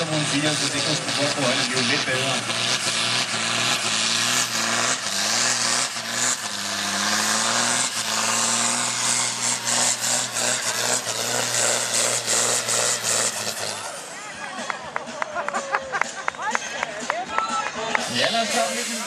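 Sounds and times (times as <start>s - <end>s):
tractor diesel engine under load: 0.0s - 14.7s
loud rushing noise: 18.0s - 19.0s.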